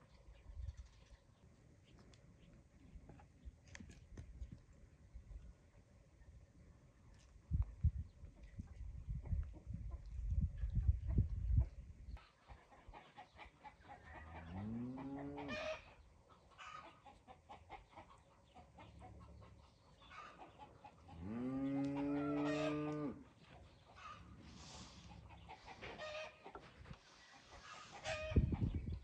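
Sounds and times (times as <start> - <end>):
hens clucking: 9.2 - 29.0.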